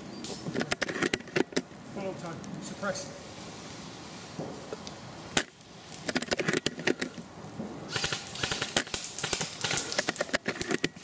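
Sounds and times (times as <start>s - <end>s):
airsoft gun crack: 7.9s - 11.0s
rapid airsoft gun clicks: 7.9s - 11.0s.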